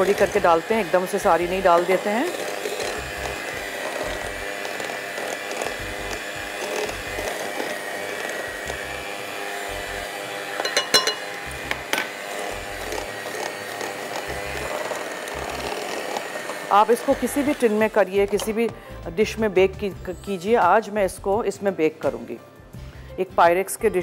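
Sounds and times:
electric hand mixer running: 0.0s - 19.0s.

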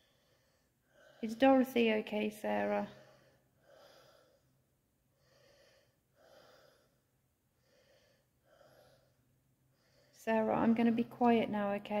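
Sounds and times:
soft breathing: 0.0s - 1.9s, 2.6s - 10.4s.

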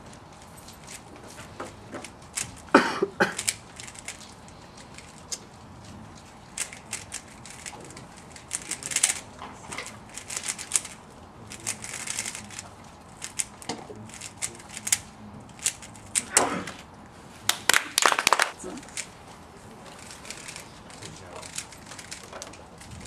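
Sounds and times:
puzzle cube plastic clacking: 3.3s - 5.5s, 6.1s - 16.4s, 20.0s - 23.0s.

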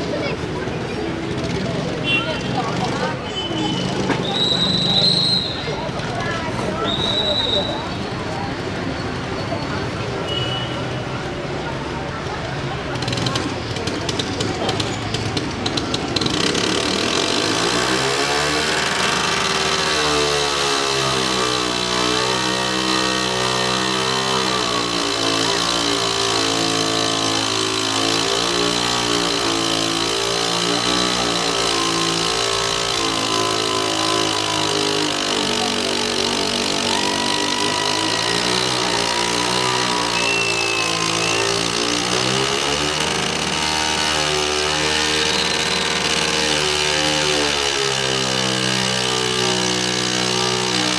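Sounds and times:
scooter engine revving hard: 0.0s - 50.9s.

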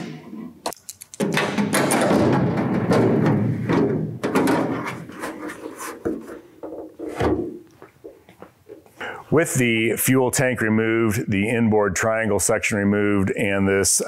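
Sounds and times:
sheet metal rubbing and knocking: 1.2s - 7.6s.

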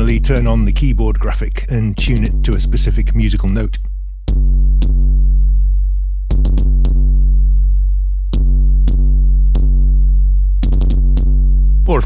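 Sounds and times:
synthesized kick drum boom: 4.3s - 12.0s.

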